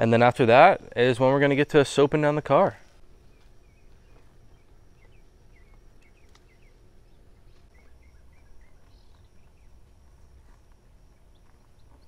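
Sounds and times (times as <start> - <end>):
low steady rumble: 0.0 - 12.0
small birds chirping: 3.2 - 12.0.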